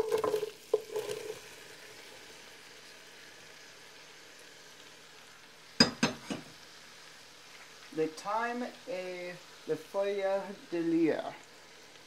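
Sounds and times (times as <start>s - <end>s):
onions clattering into pot: 0.0s - 1.4s
faint steady sizzle: 0.0s - 12.0s.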